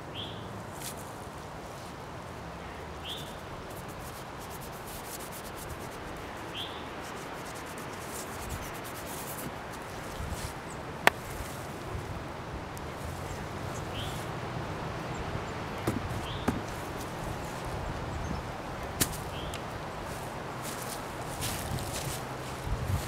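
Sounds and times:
paintbrush scrubbing on canvas: 3.7s - 10.6s.

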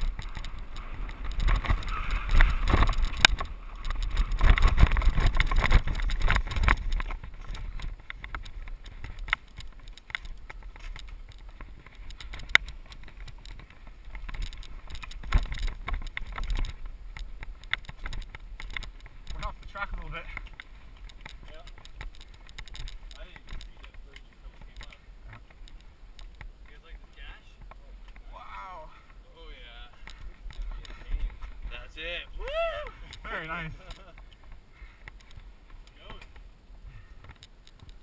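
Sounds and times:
sharp clicks: 0.0s - 26.8s
bike rattling over rough ground: 0.0s - 38.0s
bike tyres rolling on dirt: 0.0s - 38.0s.

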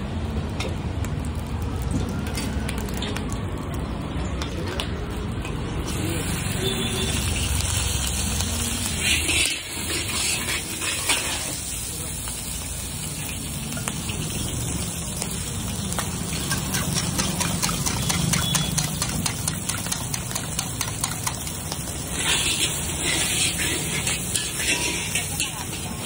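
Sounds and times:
food sizzling in a wok: 0.0s - 3.2s, 5.3s - 26.0s
ladle scraping a wok: 8.7s - 11.8s, 19.8s - 26.0s.

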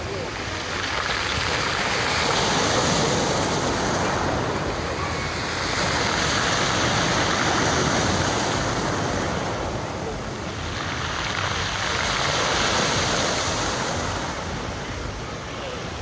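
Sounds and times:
surf washing onto pebble beach: 0.0s - 15.2s.

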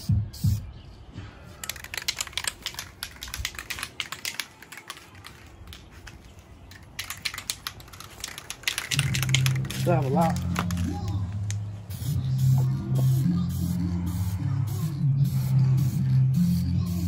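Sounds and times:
spray can rattling: 1.5s - 14.3s.

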